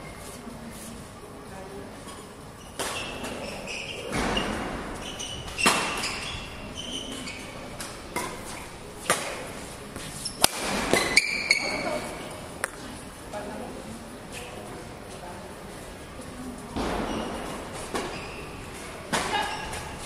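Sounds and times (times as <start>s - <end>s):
shoe squeaks: 2.6s - 9.2s, 10.0s - 12.3s, 16.9s - 20.0s
racket hitting shuttlecock: 5.6s - 6.2s, 7.8s - 9.5s, 10.4s - 11.4s, 19.1s - 19.8s.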